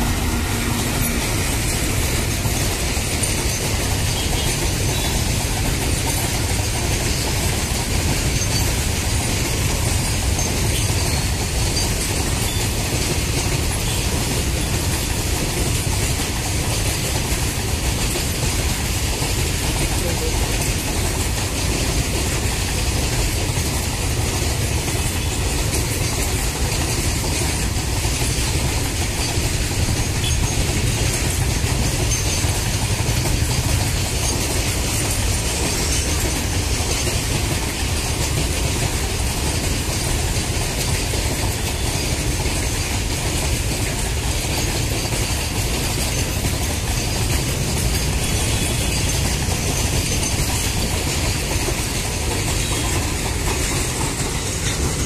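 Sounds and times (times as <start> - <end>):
freight train wheels rumbling on rails: 0.0 - 55.0.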